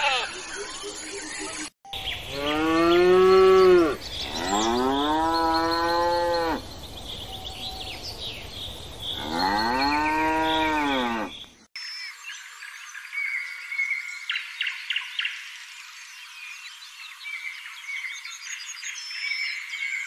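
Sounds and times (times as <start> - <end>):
faint bird or insect chirps: 4.0 - 20.0.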